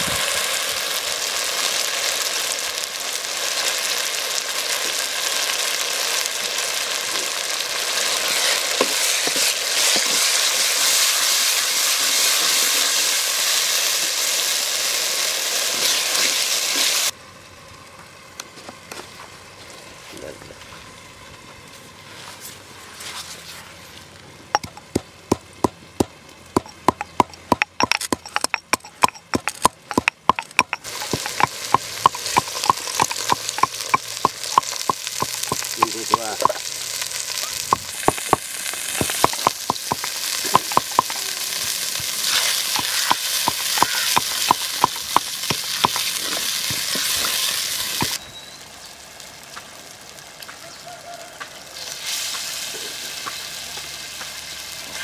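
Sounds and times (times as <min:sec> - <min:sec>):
oil sizzling in a pot: 0:00.0 - 0:17.2, 0:26.5 - 0:55.0.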